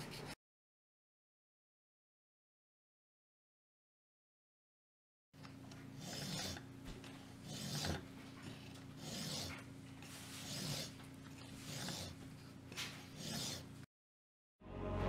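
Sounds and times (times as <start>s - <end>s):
hand file rasping on steel: 6.0s - 6.7s, 7.4s - 8.1s, 9.0s - 9.6s, 10.3s - 12.2s, 13.0s - 13.9s.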